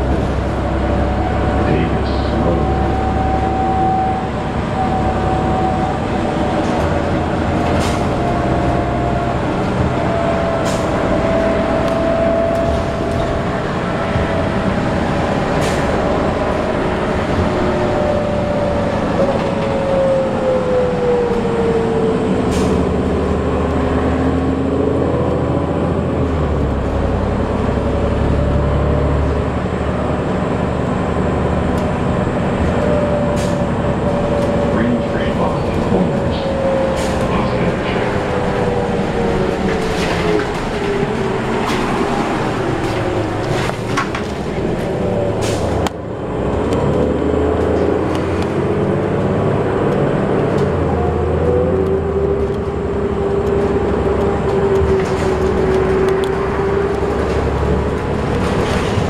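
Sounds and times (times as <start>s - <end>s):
bus engine and road rumble: 0.0s - 59.0s
drivetrain whine: 0.0s - 59.0s.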